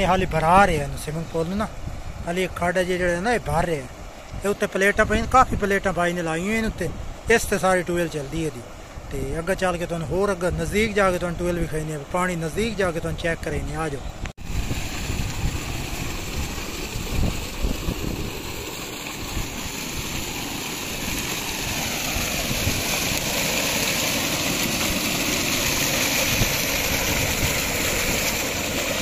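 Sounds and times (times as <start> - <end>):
water splashing into a tank: 14.5 - 29.0.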